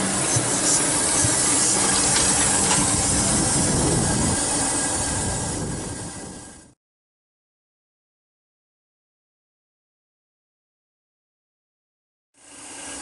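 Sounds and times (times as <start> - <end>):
steam hissing: 0.0 - 6.8, 12.4 - 13.0
train wheels on rails: 0.0 - 6.8.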